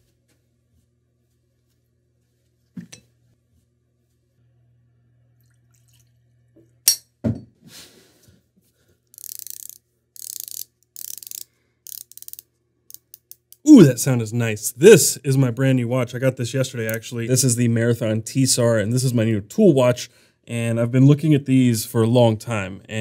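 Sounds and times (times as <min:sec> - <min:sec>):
watch bezel ratcheting clicks: 0:09.1 - 0:13.6.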